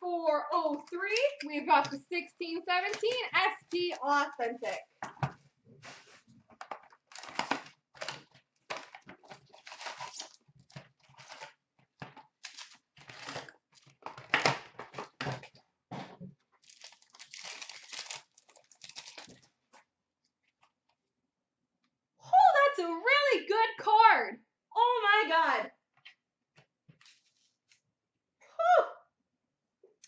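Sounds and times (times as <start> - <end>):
wrapper crinkling: 6.6 - 15.5, 16.6 - 19.8
cardboard box tearing: 8.8 - 10.4.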